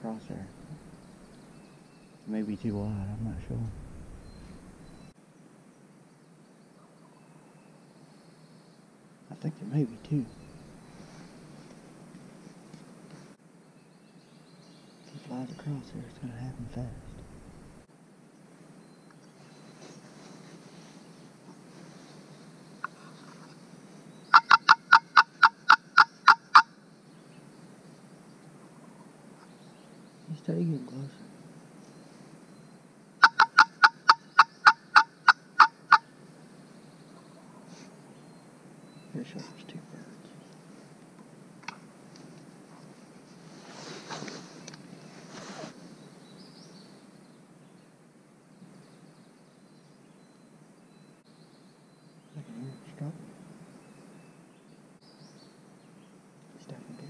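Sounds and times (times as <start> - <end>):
faint bird chirp: 0.0 - 12.7, 13.3 - 41.0, 42.8 - 57.0
rustling of clothing and leaves: 0.0 - 34.1, 35.0 - 57.0
turkey yelps: 24.3 - 26.7, 33.2 - 36.0.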